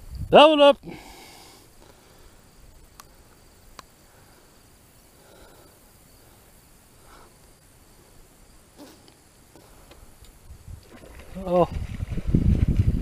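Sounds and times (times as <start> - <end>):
high insect trill: 0.0 - 13.0
faint clicks: 2.8 - 4.0, 9.0 - 10.4.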